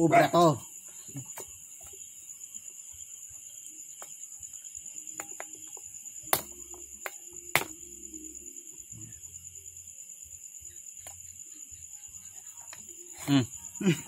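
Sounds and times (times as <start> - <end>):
cleaver chopping bones: 6.3 - 7.7.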